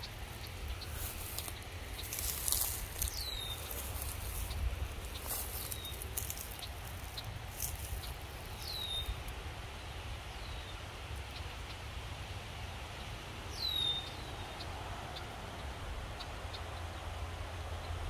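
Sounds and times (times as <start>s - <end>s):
low wind rumble: 0.0s - 18.0s.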